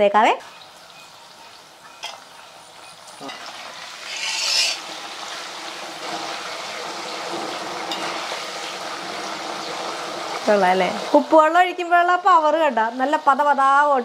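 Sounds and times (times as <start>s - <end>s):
oil sizzling and foaming: 0.1s - 14.0s
metal ladle stirring: 0.5s - 4.9s.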